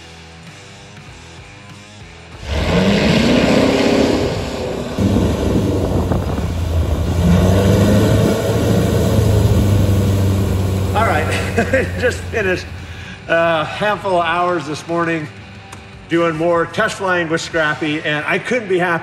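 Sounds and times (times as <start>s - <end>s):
plane piston engine and propeller: 2.4s - 13.3s.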